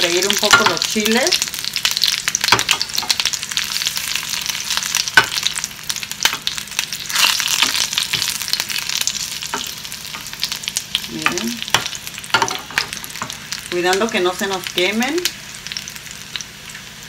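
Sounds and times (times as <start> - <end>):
chiles sizzling in hot oil: 0.0 - 17.0.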